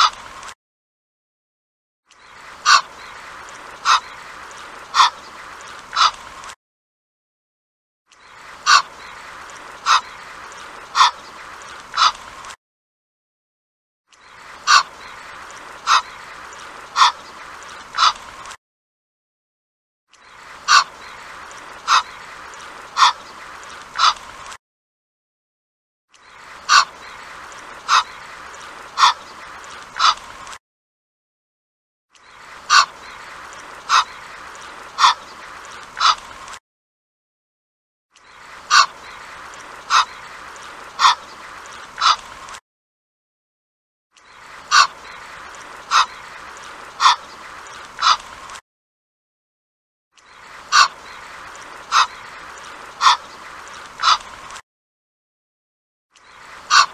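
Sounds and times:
goose honking: 53.0 - 53.2.

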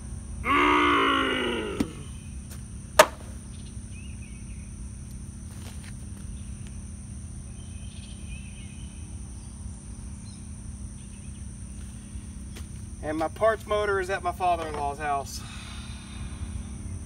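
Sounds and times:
low steady hum: 0.0 - 17.0
high-pitched insect drone: 15.0 - 17.0.

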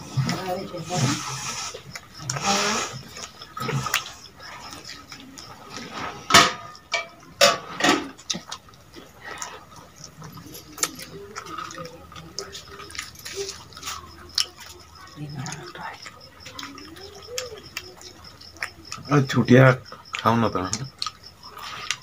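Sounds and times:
chewing and crunching: 0.0 - 22.0
mouth clicks: 1.0 - 5.9, 8.1 - 22.0.

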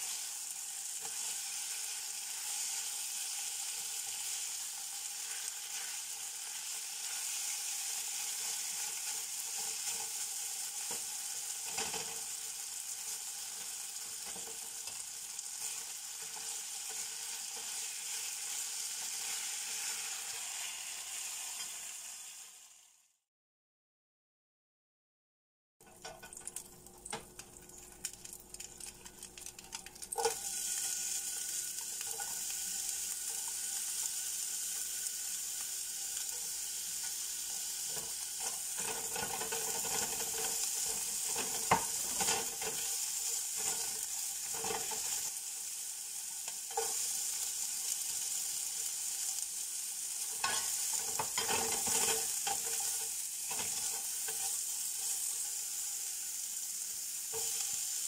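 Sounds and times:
vegetables sizzling in oil: 0.0 - 23.2, 25.8 - 58.0
spatula scraping pan: 5.2 - 12.3, 28.8 - 45.4, 46.5 - 48.6, 50.2 - 55.6.

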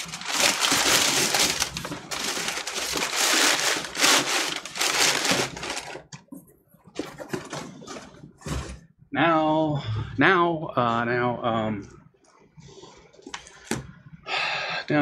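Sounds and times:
paper being crumpled: 0.0 - 6.1.

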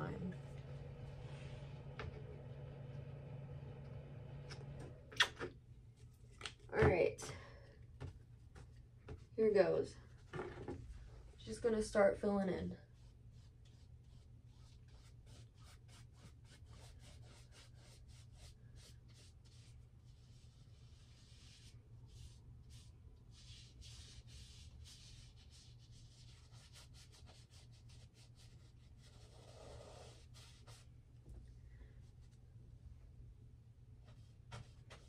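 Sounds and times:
low steady hum: 0.0 - 26.6
paintbrush strokes on canvas: 12.8 - 30.9.

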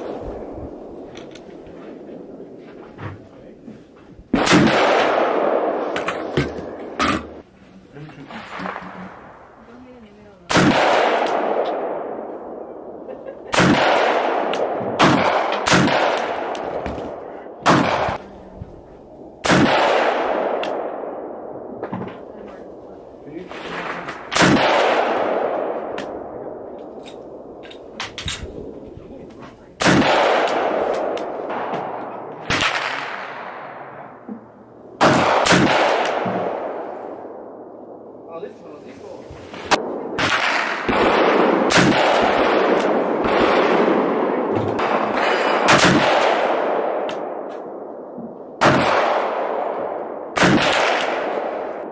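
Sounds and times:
rifle shots echoing: 4.3 - 7.4, 10.5 - 18.2, 19.2 - 22.9, 23.5 - 28.8, 29.8 - 34.3, 34.9 - 38.3, 39.7 - 51.9.

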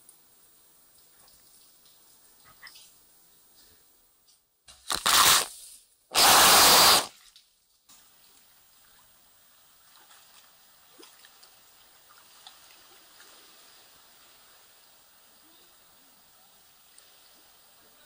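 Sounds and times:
water trickling and dripping: 0.0 - 4.4, 7.1 - 18.0
water gushing: 6.1 - 7.2.

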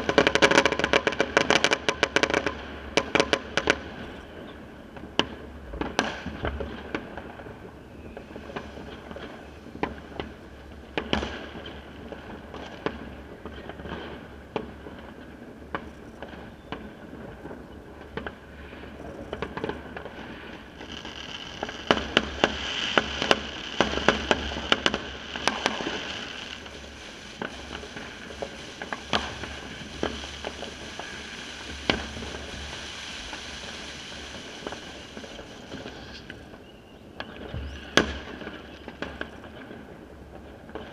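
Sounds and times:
fireworks and firecrackers banging: 0.0 - 40.9
high hiss: 20.0 - 36.6.

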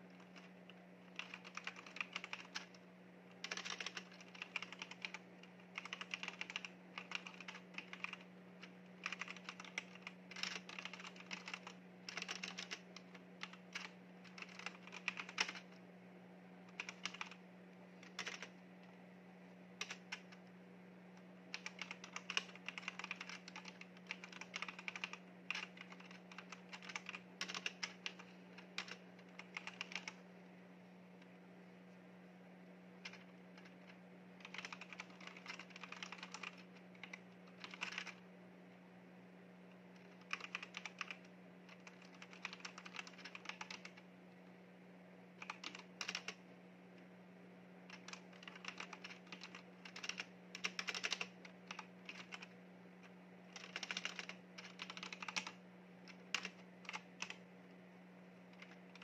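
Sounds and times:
steady low hum: 0.0 - 59.0
mechanical keyboard typing: 0.1 - 0.5, 1.1 - 2.8, 3.4 - 15.8, 16.7 - 17.4, 18.0 - 18.5, 19.8 - 20.4, 21.5 - 30.2, 33.0 - 38.2, 40.0 - 44.0, 45.4 - 46.4, 47.9 - 52.5, 53.5 - 57.4, 58.5 - 59.0.

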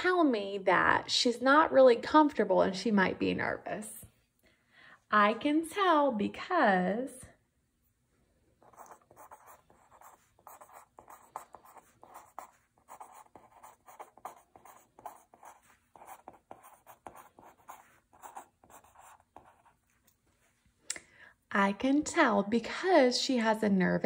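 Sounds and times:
pen scratching on paper: 8.6 - 20.5.

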